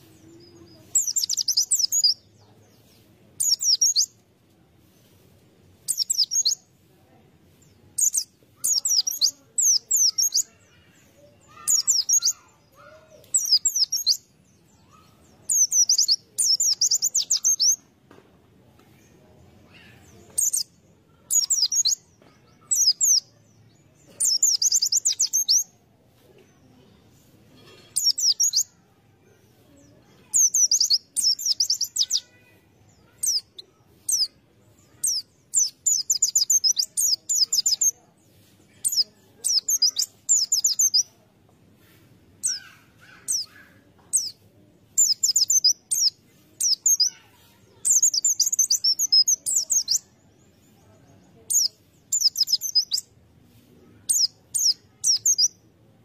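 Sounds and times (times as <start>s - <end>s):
bird twittering: 0.8s - 2.2s, 15.5s - 17.8s, 30.2s - 32.4s, 45.0s - 47.2s, 47.8s - 50.1s, 51.5s - 53.0s.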